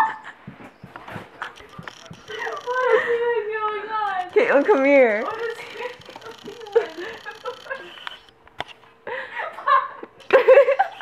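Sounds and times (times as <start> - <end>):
girls giggling: 1.4 - 3.6, 5.4 - 8.3, 9.0 - 11.0.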